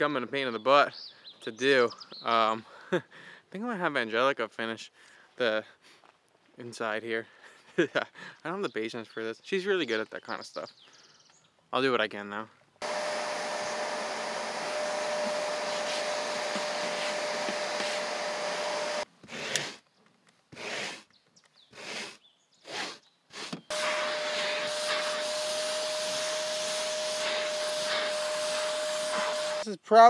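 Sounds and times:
vacuum cleaner running with whine: 12.8 - 19.0, 23.7 - 29.6
brush scraping carpet: 12.8 - 19.8, 23.8 - 29.6.

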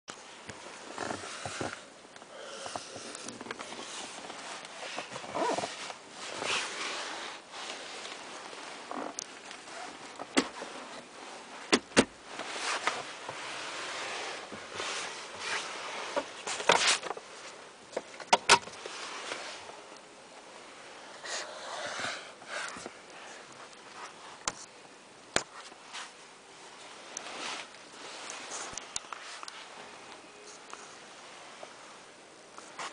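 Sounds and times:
breathy noises near microphone: 0.6 - 11.7, 18.8 - 24.8, 25.5 - 32.9.

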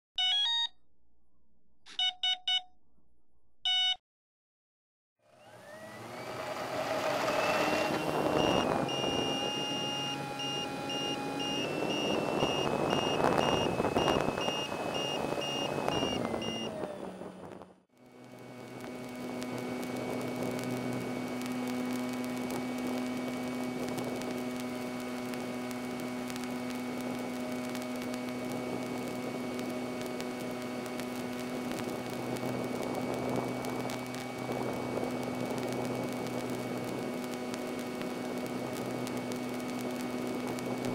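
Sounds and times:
high beep: 1.9 - 2.8, 3.6 - 4.0
electric motor and propeller whine: 5.2 - 40.9.

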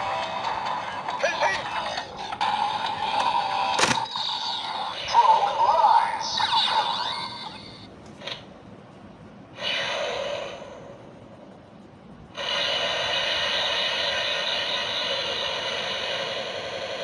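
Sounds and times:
toy electronic sound effects: 1.1 - 7.9
steady rushing hiss: 9.6 - 17.0
hissing whoosh: 12.4 - 17.0.

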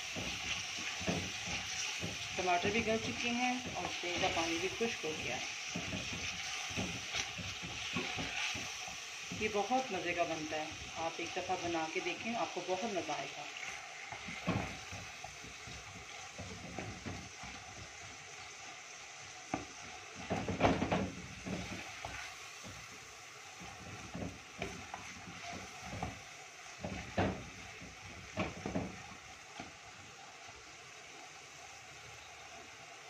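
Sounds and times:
wooden spoon scraping pot: 0.0 - 18.6, 19.5 - 22.9
meat sizzling in oil: 0.0 - 33.0.

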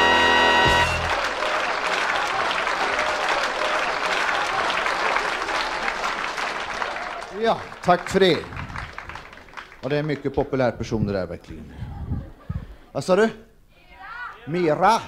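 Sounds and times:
band holding a chord: 0.0 - 1.2
audience applauding: 0.0 - 10.5.

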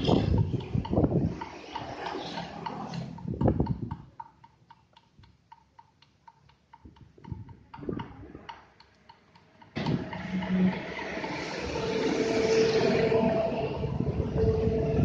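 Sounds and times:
rapid even ticking: 0.0 - 12.0
low rumbling noise: 9.8 - 15.0.

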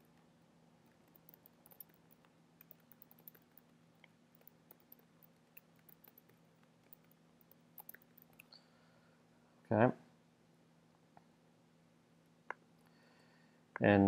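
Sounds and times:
faint low hum: 0.0 - 14.0
keyboard typing: 0.8 - 8.6.

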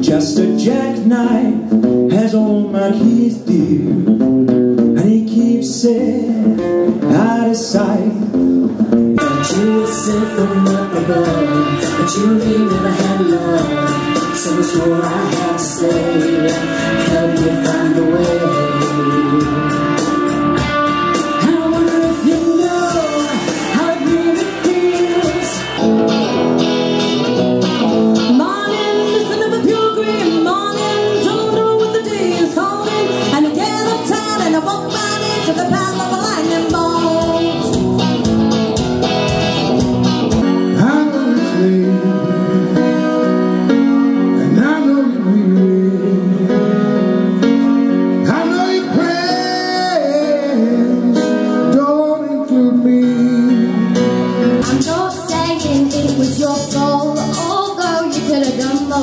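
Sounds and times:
man singing: 0.0 - 26.0, 40.4 - 59.0
guitar accompaniment: 0.0 - 59.0
woman singing into microphone: 9.2 - 20.2, 21.2 - 25.8, 28.2 - 37.9, 52.7 - 59.0.

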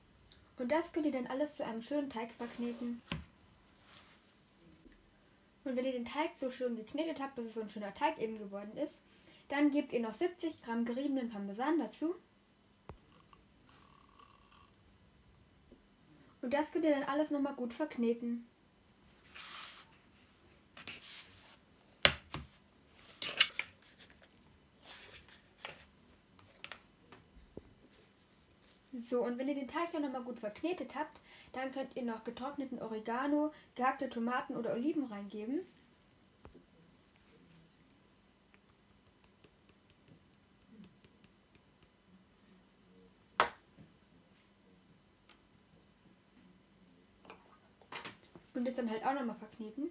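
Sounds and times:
hand kneading dough: 37.2 - 42.1.

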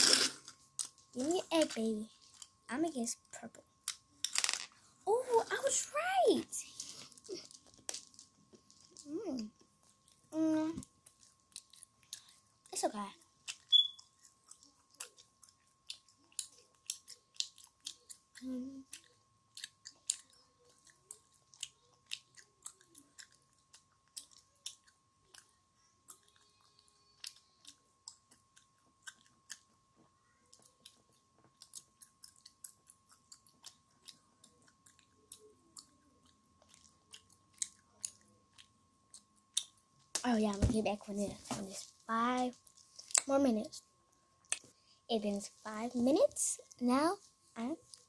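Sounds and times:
child chewing gum smacking: 6.8 - 40.3, 44.1 - 44.8.

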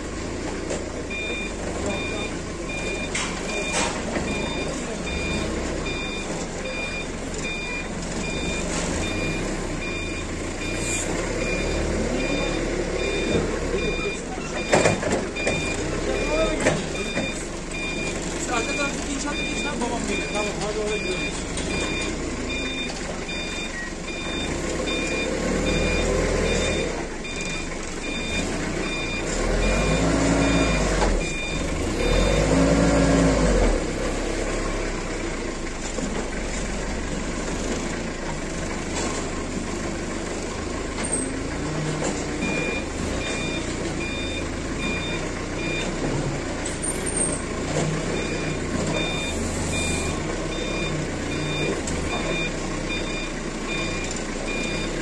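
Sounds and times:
forklift engine revving: 0.0 - 55.0
reversing alarm beeping: 1.1 - 32.9, 42.4 - 46.1, 46.7 - 55.0.

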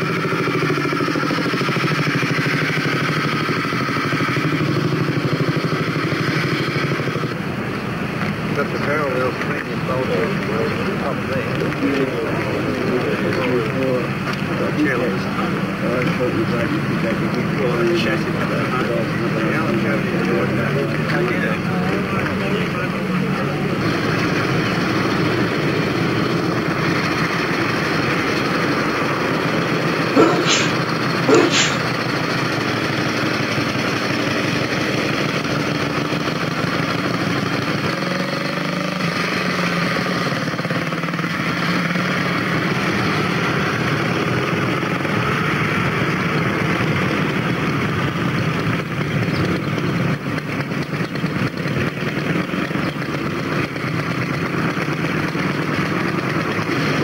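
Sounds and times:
motorcycles riding past: 0.0 - 57.0
short sharp sounds: 30.2 - 31.9.

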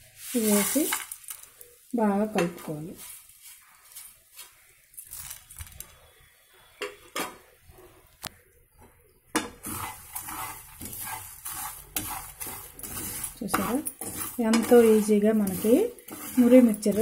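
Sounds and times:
grains rattling against pan: 0.3 - 1.6, 9.6 - 17.0
spoon scraping frying pan: 2.2 - 4.5, 9.4 - 17.0.

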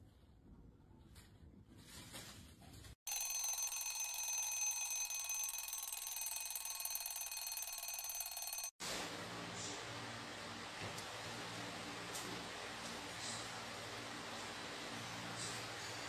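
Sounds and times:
alarm clock ringing: 3.1 - 8.8.

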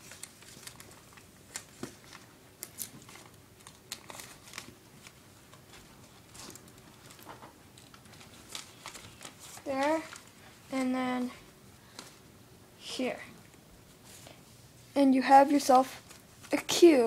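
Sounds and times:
paper rustling and crinkling: 0.0 - 12.2, 15.8 - 17.0.

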